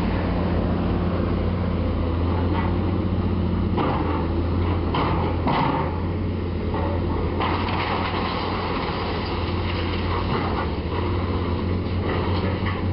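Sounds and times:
excavator diesel engine running: 0.0 - 12.9
masonry crunching and breaking: 7.4 - 10.6.

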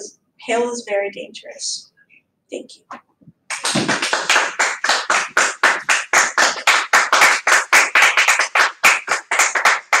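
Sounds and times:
small group applauding: 3.5 - 10.0.

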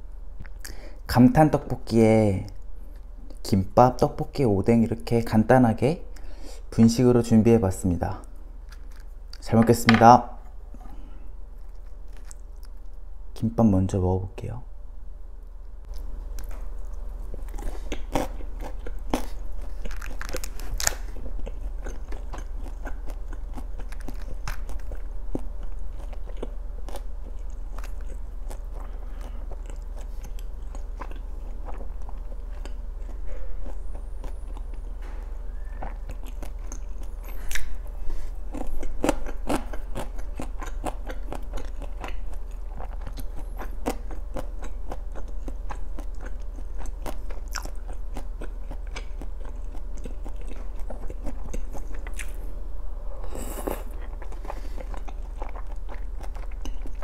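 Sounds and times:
steady low hum: 0.0 - 57.0
chewing with wet mouth clicks: 11.6 - 13.0, 15.8 - 34.9, 35.5 - 37.9, 38.5 - 52.4, 53.6 - 57.0.

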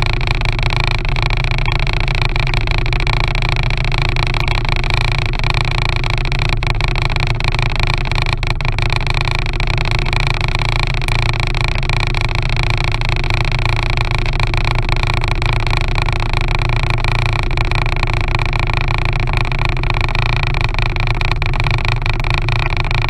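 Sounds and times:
outboard motor droning: 0.0 - 23.0.

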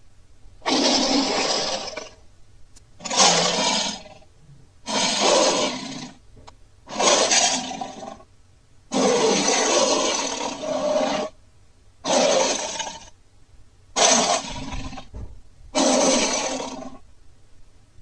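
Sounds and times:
monster roars: 14.0 - 15.1, 15.8 - 17.0.

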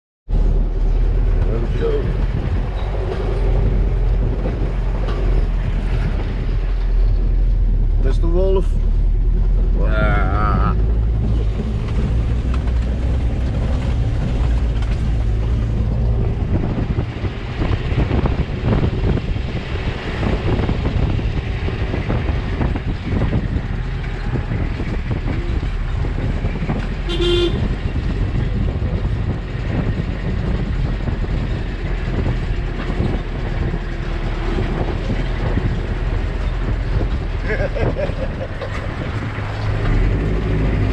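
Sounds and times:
car engine and road rumble: 0.3 - 40.9
car horn beep: 27.0 - 27.7.

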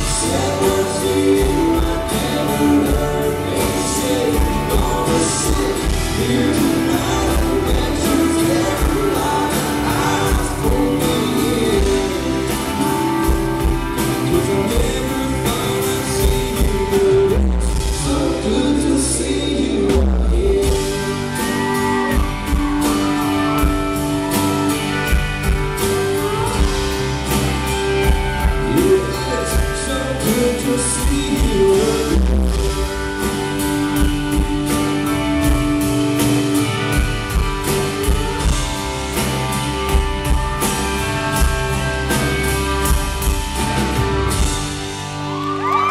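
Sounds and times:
acoustic guitar strumming: 0.0 - 19.7, 20.7 - 45.9
person singing: 0.0 - 23.3, 28.4 - 33.4.

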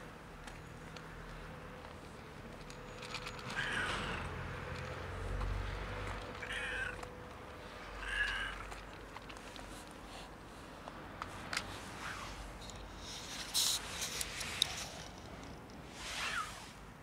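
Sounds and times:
cat meowing: 3.6 - 4.2, 6.4 - 7.1, 8.0 - 8.7.

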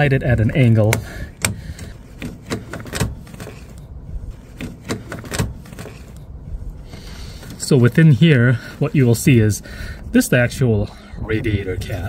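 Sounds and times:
panel clicks and knocks: 0.6 - 3.7, 4.6 - 6.0.

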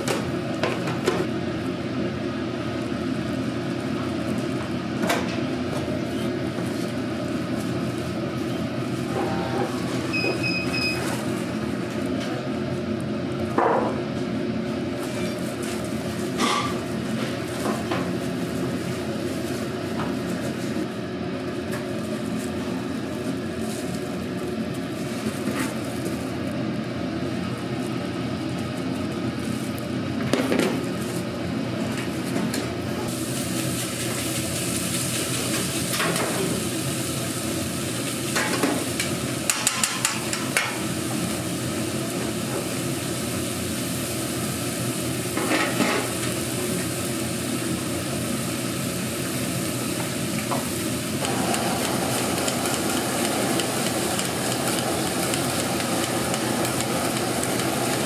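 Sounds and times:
food sizzling on a griddle: 33.0 - 58.0.

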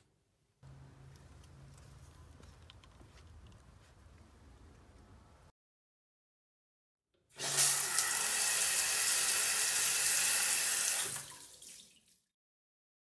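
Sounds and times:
shower spraying on tiled wall: 7.4 - 12.2.

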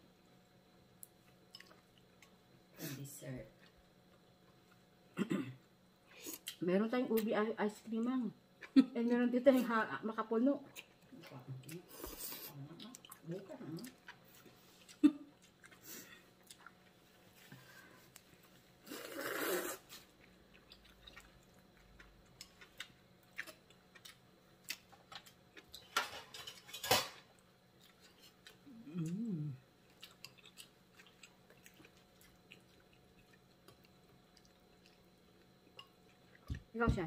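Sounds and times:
person slurping: 18.9 - 19.9
person humming mm: 28.7 - 29.6.

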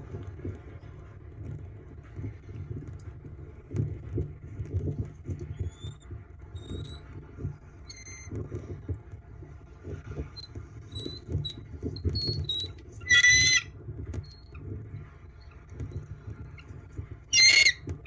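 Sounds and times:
loud ringing eagle call: 17.3 - 17.8.

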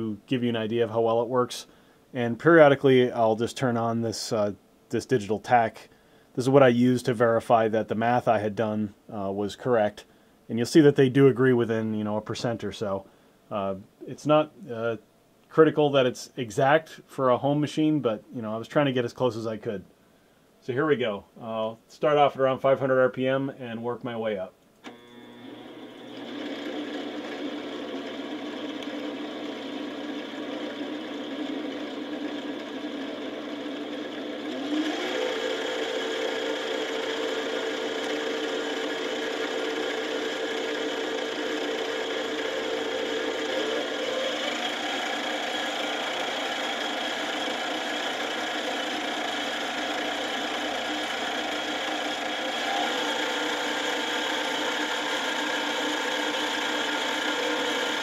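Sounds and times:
milling machine motor whine: 24.8 - 58.0.

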